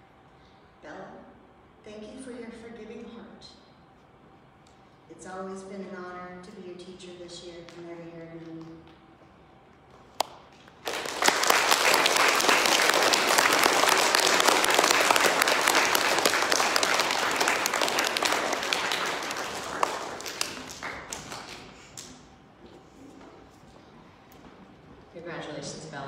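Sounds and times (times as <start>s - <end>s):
group of people applauding: 10.2s - 22.3s.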